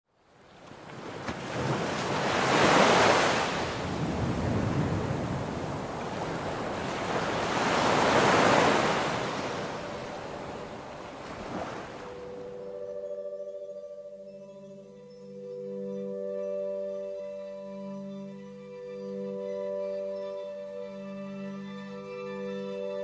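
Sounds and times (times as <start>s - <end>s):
ocean surf breaking: 0.6s - 12.5s.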